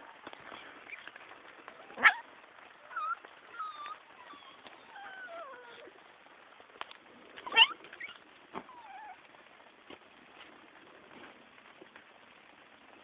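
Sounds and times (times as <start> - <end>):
puppies whining and squeaking: 2.8 - 5.9, 7.4 - 9.3.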